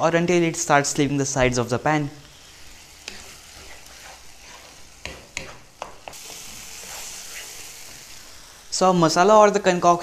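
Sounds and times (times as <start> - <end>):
food sizzling in a frying pan: 0.2 - 10.0
spatula scraping and knocking pan: 3.0 - 8.0.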